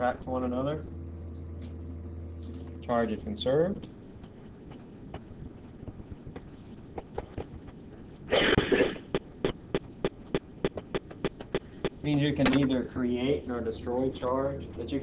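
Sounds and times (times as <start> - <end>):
person coughing: 8.3 - 9.6.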